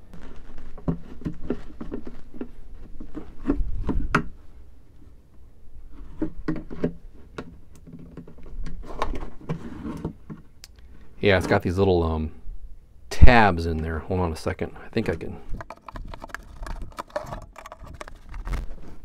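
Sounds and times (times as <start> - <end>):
plastic clicks and scraping: 15.1 - 19.0.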